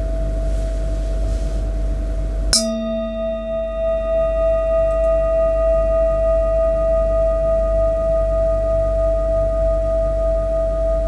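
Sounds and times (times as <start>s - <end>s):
singing bowl ringing: 2.6s - 9.6s.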